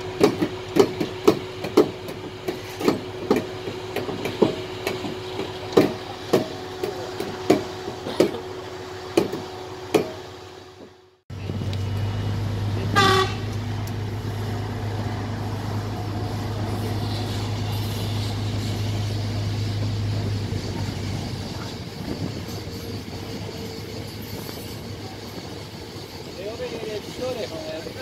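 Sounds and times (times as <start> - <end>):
electric train humming: 0.0 - 28.0
train horn toot: 12.9 - 13.6.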